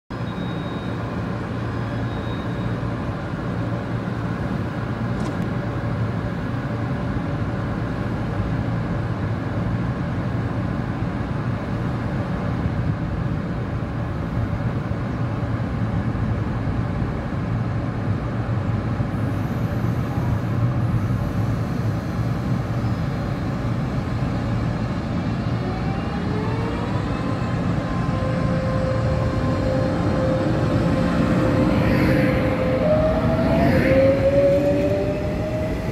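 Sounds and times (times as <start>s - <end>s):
train traction motor whine: 0.2s - 9.0s, 18.2s - 35.9s
electric train humming: 0.2s - 35.9s.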